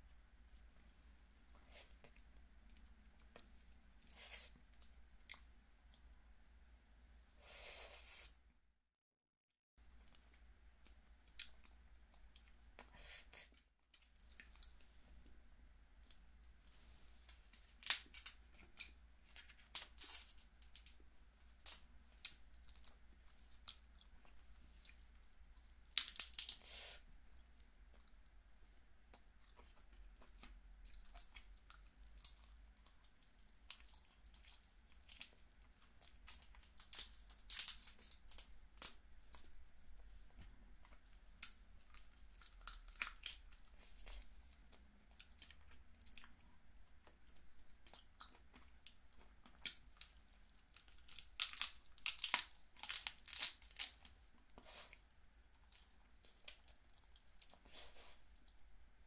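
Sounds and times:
chewing: 13.5s - 14.9s, 29.1s - 38.1s, 38.8s - 58.6s
crab shell crackling: 24.9s - 26.6s, 50.0s - 54.1s
meat tearing: 25.8s - 26.6s, 36.0s - 39.4s, 41.4s - 44.2s, 48.0s - 54.9s.

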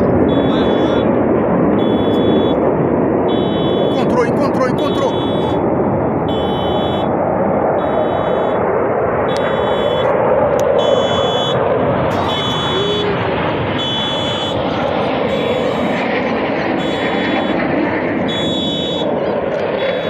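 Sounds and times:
jet noise: 0.0s - 20.0s
high electronic beeps: 0.3s - 1.1s, 1.8s - 2.6s, 3.3s - 5.7s, 6.3s - 7.1s, 7.8s - 8.6s, 9.3s - 10.2s, 10.8s - 16.1s, 16.7s - 19.1s, 19.8s - 20.0s.

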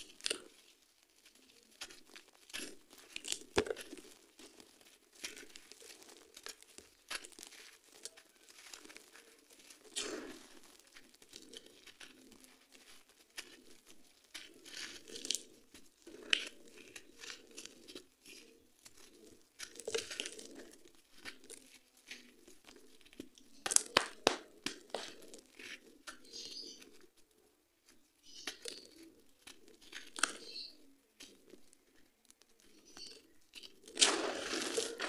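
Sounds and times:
gravel crunching in hands: 0.0s - 35.0s
sharp cracks: 23.7s - 25.2s, 33.9s - 35.0s
grains trickling: 34.0s - 35.0s.

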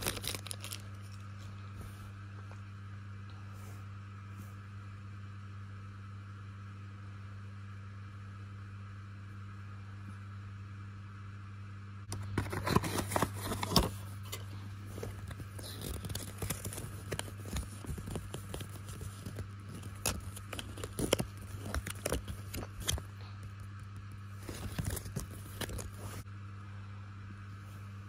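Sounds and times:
cardboard and paper crinkling: 0.0s - 1.5s, 12.1s - 26.2s
steady low hum: 0.0s - 28.0s.

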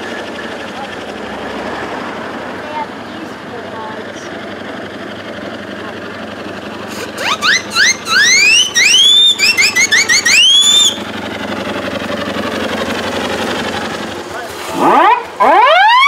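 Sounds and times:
engine and road noise: 0.0s - 16.0s
steam whistle short toots: 7.2s - 11.0s.

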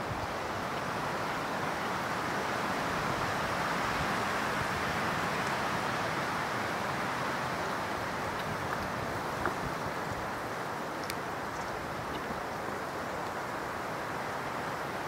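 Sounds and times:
wind through pine trees: 0.0s - 15.0s.

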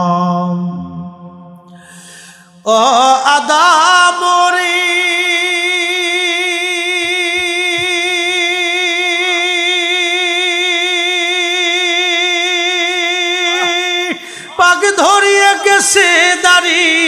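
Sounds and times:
man singing a held note: 13.2s - 17.0s.

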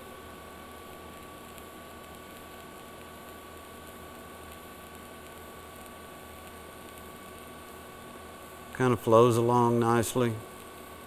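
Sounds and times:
thin high whine: 0.0s - 1.7s, 8.4s - 11.0s
welding arc hissing: 0.0s - 11.0s.

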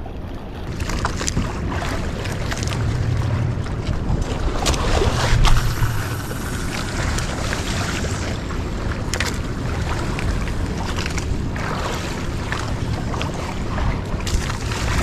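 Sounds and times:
wind buffeting microphone: 0.0s - 15.0s
water slapping against boat hull: 0.4s - 15.0s.

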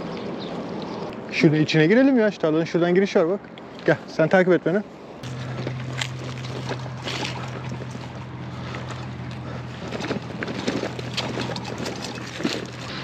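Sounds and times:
steady low hum: 5.0s - 13.0s
bicycle tyres crackling and rattling: 5.2s - 13.0s.

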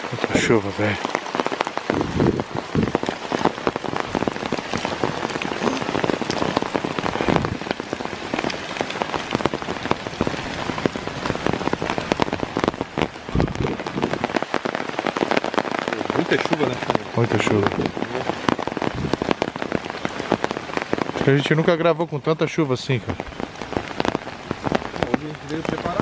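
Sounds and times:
heavy rain on leaves: 0.0s - 26.0s
dull low thumps: 1.8s - 14.5s, 18.6s - 19.4s.

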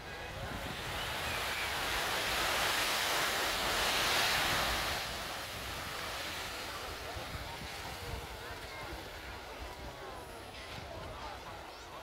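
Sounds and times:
sea wave washing up: 0.0s - 9.5s.

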